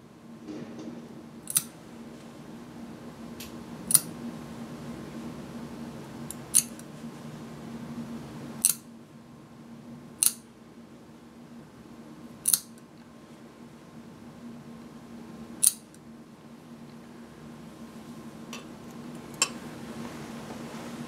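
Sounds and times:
nail clipper snapping claws: 1.5 - 1.7, 3.9 - 4.1, 6.3 - 6.8, 8.6 - 8.8, 10.2 - 10.4, 12.4 - 12.7, 15.6 - 15.8.

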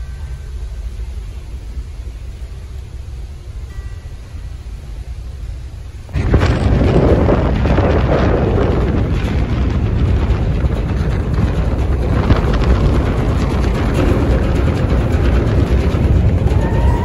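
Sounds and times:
wind buffeting microphone: 6.1 - 17.0.

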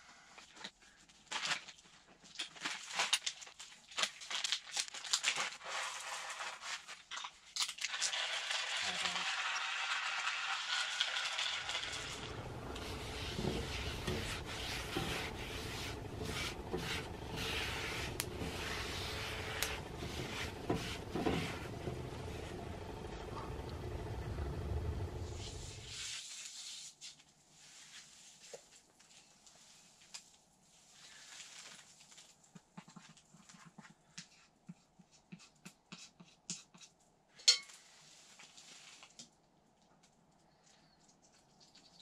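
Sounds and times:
paper towel scraping skillet: 5.4 - 7.1, 8.1 - 23.5.

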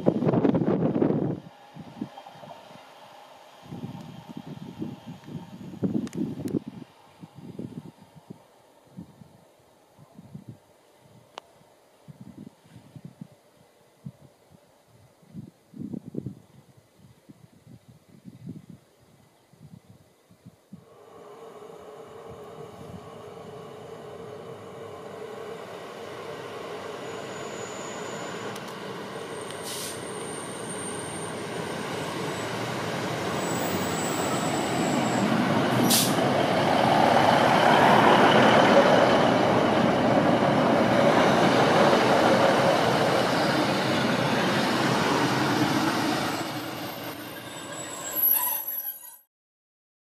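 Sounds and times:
diesel train passing: 0.0 - 8.7, 20.8 - 49.1.

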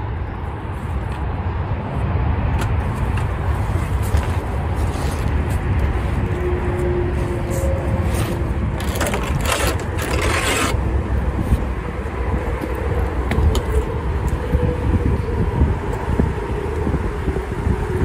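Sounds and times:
panel scraping under car: 8.1 - 10.8.

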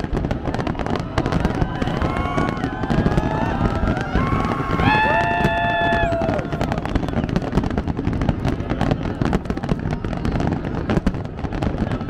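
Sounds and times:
fireworks crackling and popping: 0.0 - 12.0
spectators cheering: 0.4 - 7.6.

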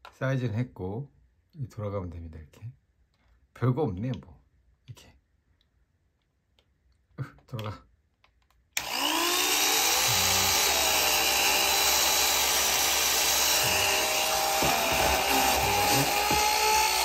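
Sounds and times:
hair dryer motor whining: 8.8 - 17.0.

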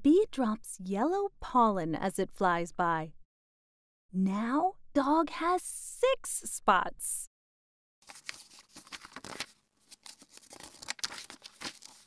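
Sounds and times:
paper page rustling: 8.0 - 12.0.

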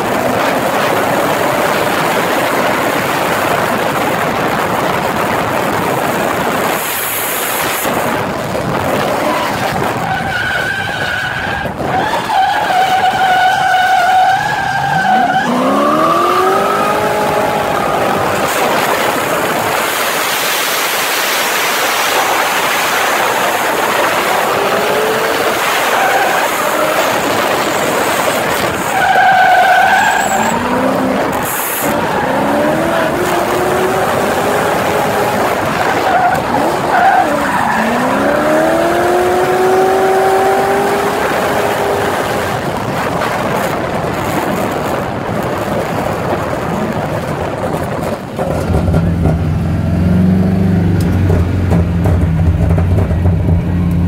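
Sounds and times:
car engine revving: 12.3 - 43.0, 48.4 - 54.0.

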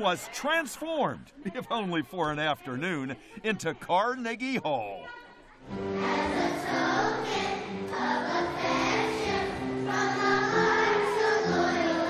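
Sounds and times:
children's choir singing: 5.6 - 12.0.

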